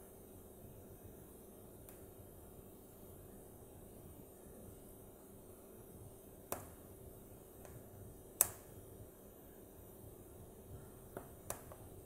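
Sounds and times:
faint steady hiss: 0.0 - 12.0
wood fire crackling: 7.5 - 8.7
sharp pops from burning logs: 8.4 - 8.7.

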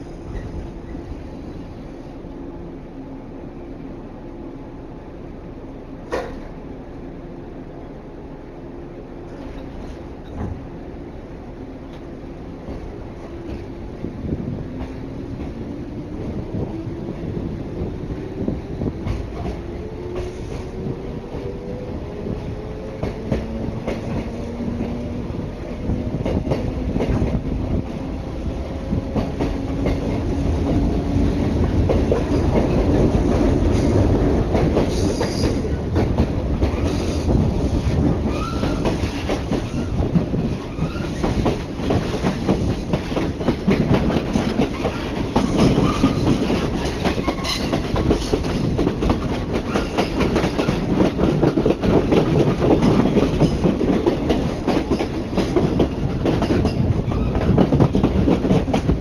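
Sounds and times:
train rumbling on rails: 0.0 - 59.0
wheels clacking over rail joints: 37.8 - 59.0.

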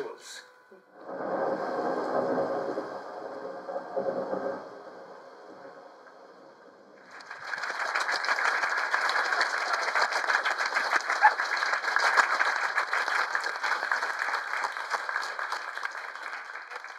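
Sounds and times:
crowd applauding: 7.0 - 16.9.

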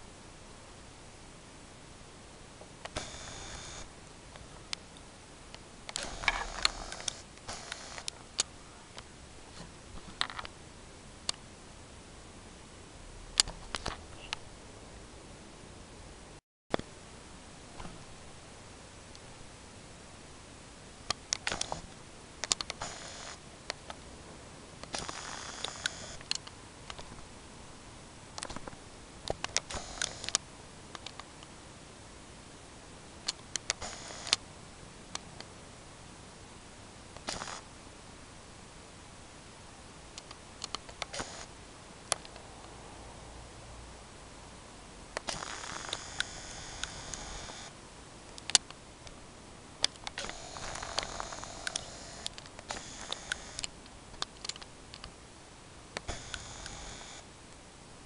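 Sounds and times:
faint steady hiss: 0.0 - 58.0
camera motor whir: 2.9 - 3.9, 5.9 - 8.1, 21.4 - 21.8, 22.6 - 23.4, 24.9 - 26.2, 29.6 - 30.4, 33.6 - 34.4, 37.2 - 37.6, 41.0 - 41.5, 45.2 - 47.7, 50.1 - 53.7, 56.0 - 57.2.

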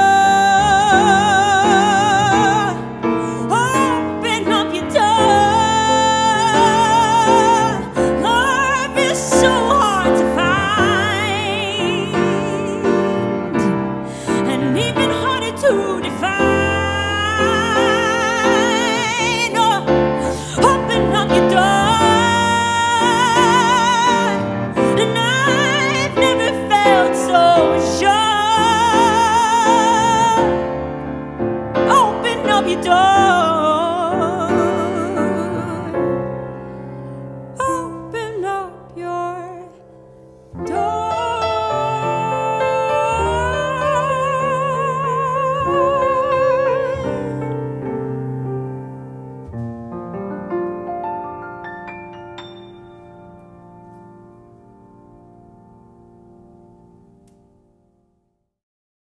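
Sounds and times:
woman singing with vibrato: 0.0 - 30.8, 31.8 - 36.2, 37.6 - 39.8, 40.6 - 47.8
piano accompaniment: 0.0 - 58.3
woman singing long note: 40.6 - 47.4.

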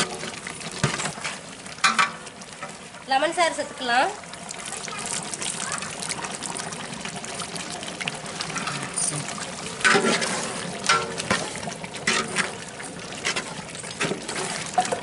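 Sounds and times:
water pouring into a pot: 0.0 - 15.0
metal knocking against a pot: 1.8 - 2.2, 10.9 - 11.4.

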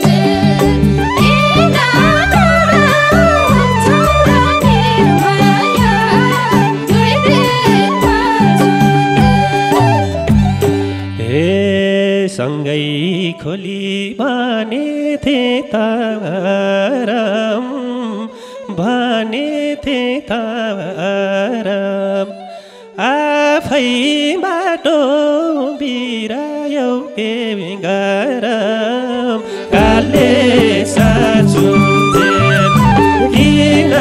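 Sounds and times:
drum strokes: 0.0 - 11.1, 29.8 - 34.0
folk band playing: 0.0 - 11.9, 29.4 - 34.0.

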